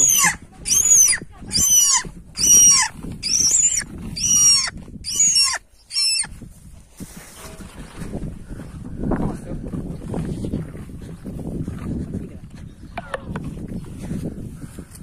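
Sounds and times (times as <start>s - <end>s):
bird squealing calls: 0.0s - 6.3s.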